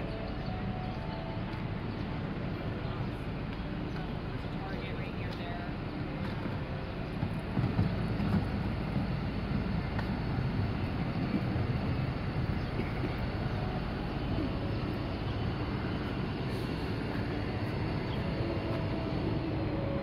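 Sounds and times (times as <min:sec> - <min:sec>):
city traffic rumble: 0:00.0 - 0:20.0.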